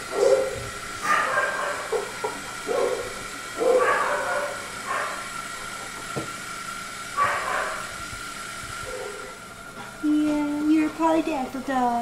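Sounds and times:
dog barking: 0.1s - 5.3s, 7.2s - 7.9s, 8.8s - 9.3s.

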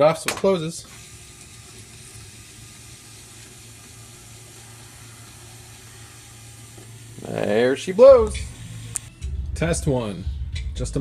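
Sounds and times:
antenna motor humming: 0.8s - 9.3s.

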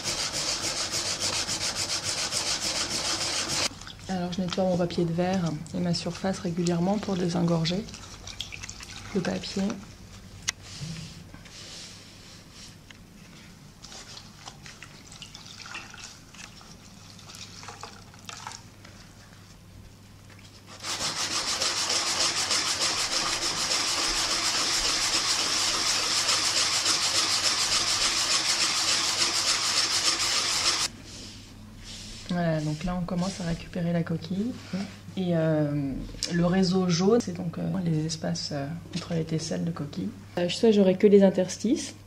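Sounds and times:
sandpaper scrubbing on panel: 0.0s - 3.7s, 20.7s - 30.9s.

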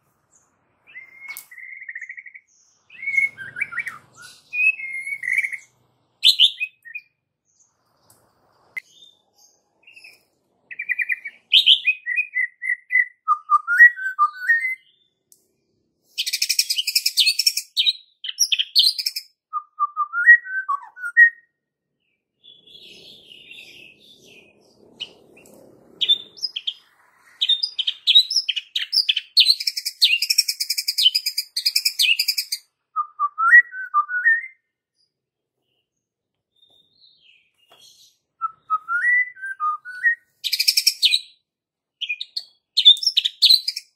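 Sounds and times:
bird singing whistled phrases: 0.9s - 7.1s, 9.8s - 15.1s, 16.2s - 21.6s, 27.4s - 34.8s, 36.5s - 41.4s, 42.0s - 43.9s.

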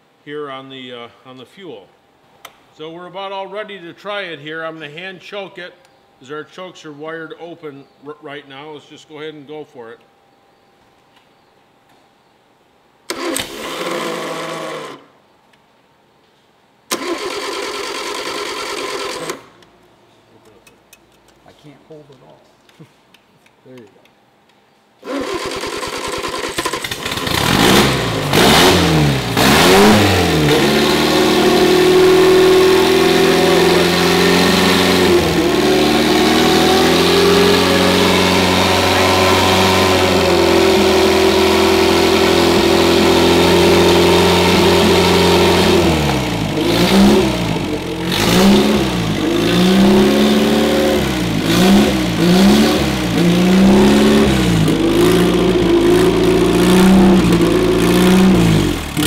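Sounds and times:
engine starting and revving: 13.1s - 15.1s, 16.9s - 19.6s, 25.0s - 59.0s.

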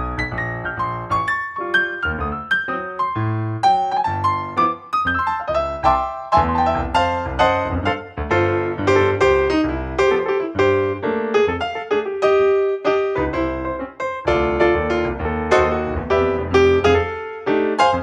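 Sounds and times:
lively piano music: 0.0s - 18.0s.

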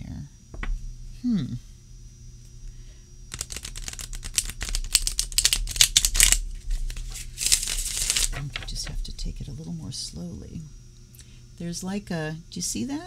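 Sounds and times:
cards being riffle-shuffled: 3.3s - 9.0s.

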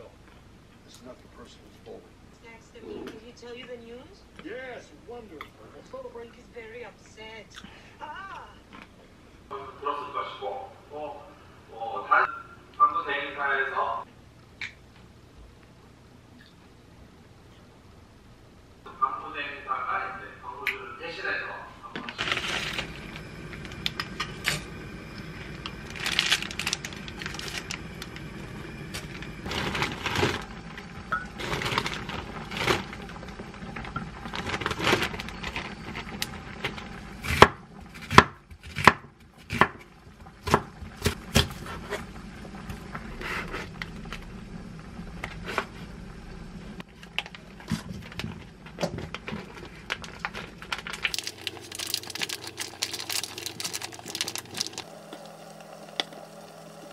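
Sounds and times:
low hum: 21.6s - 38.6s, 39.8s - 56.9s
plastic packaging rustling: 22.0s - 37.0s, 46.9s - 54.9s.

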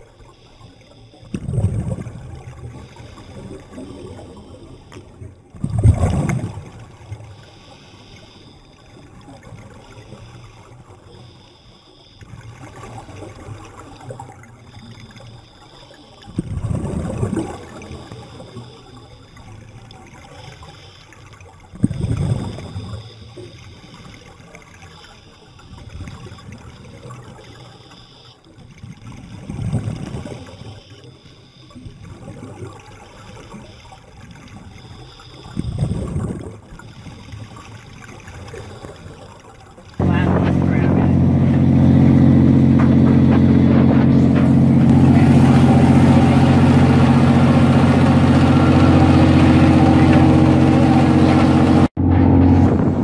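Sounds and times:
steady watery hiss: 0.0s - 5.6s, 6.4s - 41.1s
water rushing surge: 40.0s - 53.0s.

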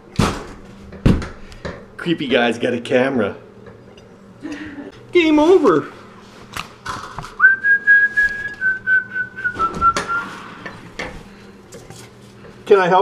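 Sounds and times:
person whistling: 7.4s - 10.4s.

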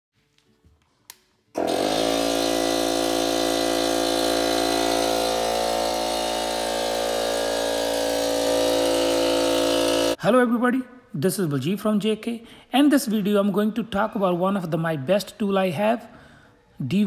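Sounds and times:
air compressor running: 1.6s - 10.2s.

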